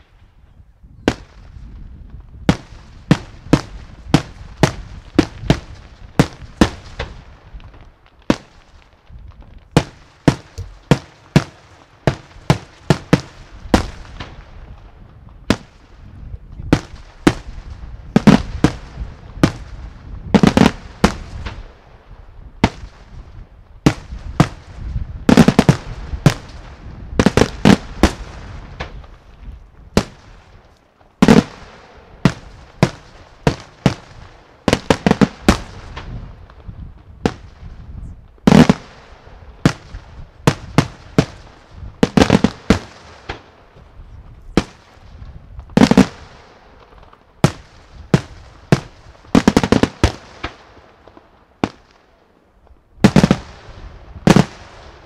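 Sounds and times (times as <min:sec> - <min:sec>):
firework shells bursting: 0:09.6 - 0:14.3.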